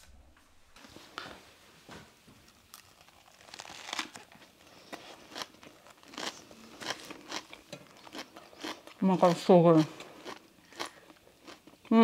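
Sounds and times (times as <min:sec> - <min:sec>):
crisp crunchy chewing: 0:02.5 - 0:11.9.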